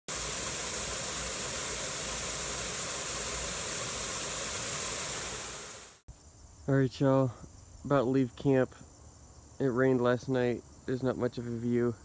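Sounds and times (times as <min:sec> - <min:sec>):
waterfall rushing: 0:00.1 - 0:06.0.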